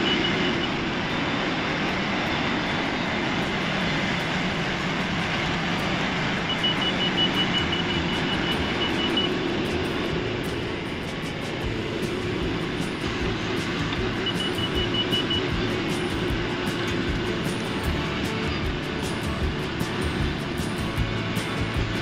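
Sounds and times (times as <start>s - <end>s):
high repeated beeping: 0.0s - 0.8s, 6.4s - 9.6s, 12.4s - 18.0s
tractor engine running: 0.0s - 22.0s.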